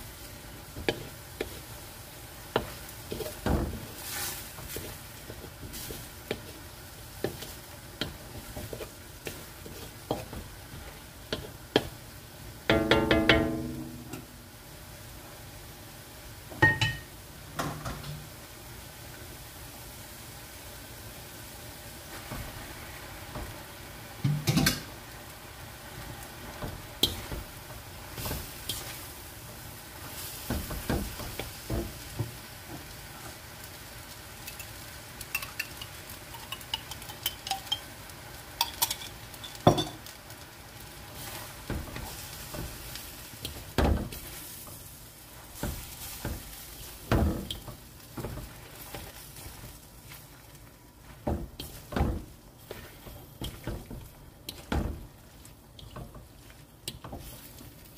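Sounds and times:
food sizzling in a wok: 0.0 - 57.9.

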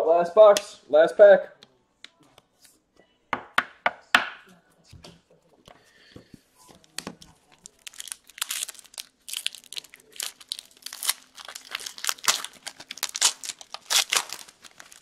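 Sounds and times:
card pack wrapper tearing and crinkling: 6.8 - 15.0.

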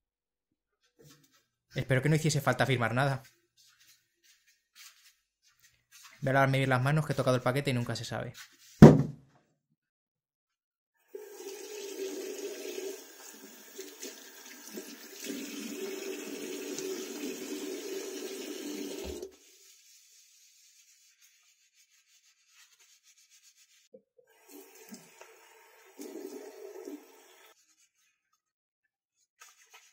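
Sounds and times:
tap water running into basin: 11.0 - 19.3, 24.3 - 27.6
water splashing over rubbed hands: 29.4 - 29.9.

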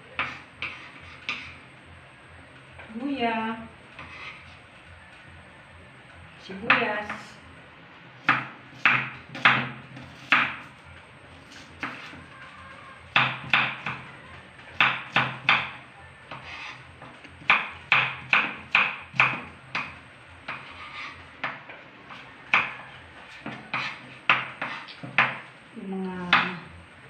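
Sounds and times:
knife chopping on wooden board: 8.2 - 10.7, 11.4 - 12.2, 13.1 - 14.0, 14.8 - 16.7, 17.3 - 25.4.

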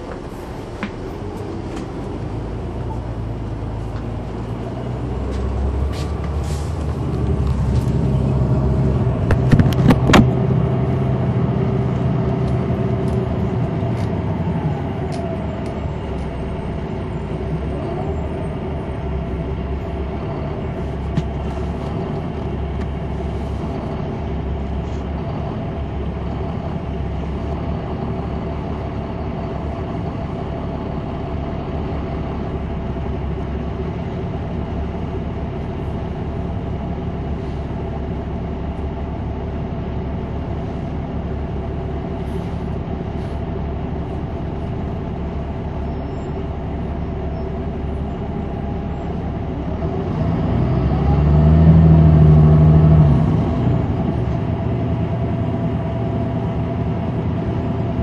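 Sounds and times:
bus diesel engine hum: 0.0 - 58.0
rattles and knocks: 9.2 - 10.4.

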